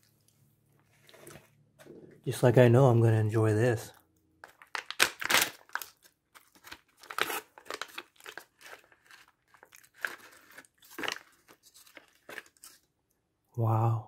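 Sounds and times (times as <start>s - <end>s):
plastic packaging crinkling and tearing: 4.4s - 12.9s.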